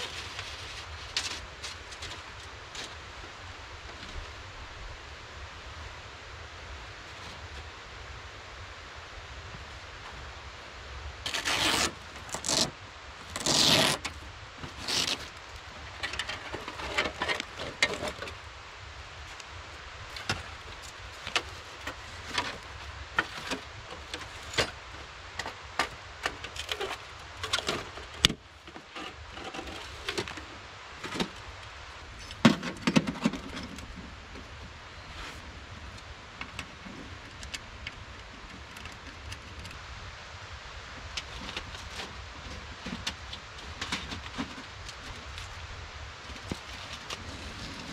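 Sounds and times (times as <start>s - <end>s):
gear rustling and scraping: 0.0s - 4.4s, 11.2s - 18.4s, 20.0s - 35.5s, 46.2s - 47.9s.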